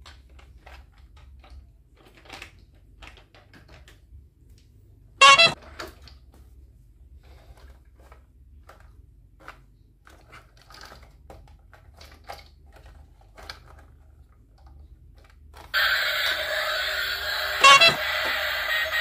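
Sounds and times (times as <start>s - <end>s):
plastic toy clicking and knocking: 0.0s - 4.0s
toy electronic sound from speaker: 5.2s - 5.6s, 15.8s - 19.0s.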